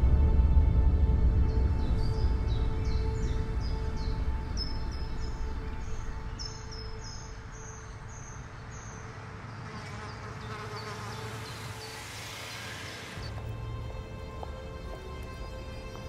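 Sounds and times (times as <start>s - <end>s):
insect chirps: 5.4s - 13.3s.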